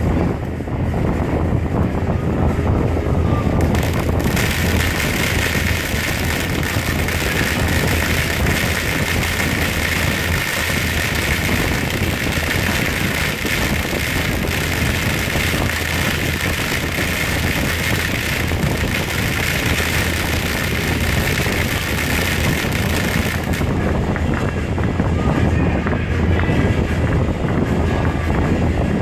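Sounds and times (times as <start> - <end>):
firework hissing sparks: 3.6 - 23.7.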